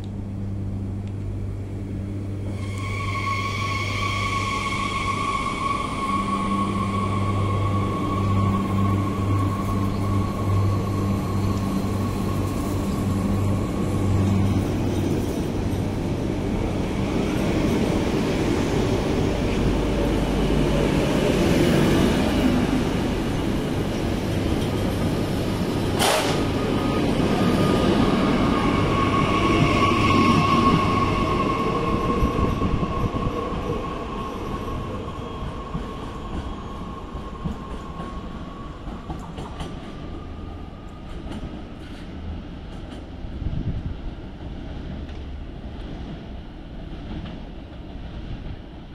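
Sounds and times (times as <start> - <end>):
train hum and whine: 0.0 - 48.9
train wheels rumbling on rails: 0.1 - 48.9
sharp clank: 26.0 - 26.5.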